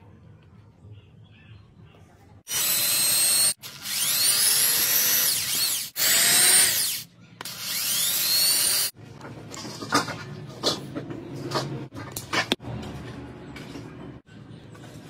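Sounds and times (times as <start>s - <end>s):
electric drill whining: 2.5s - 8.9s.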